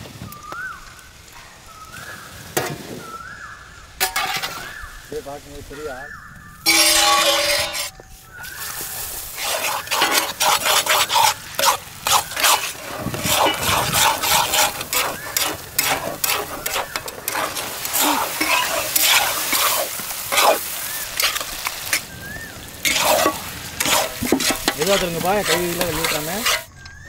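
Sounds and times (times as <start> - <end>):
food sizzling in hot oil: 0.1 - 26.7
metal spatula scraping wok: 4.0 - 5.0, 6.6 - 26.7.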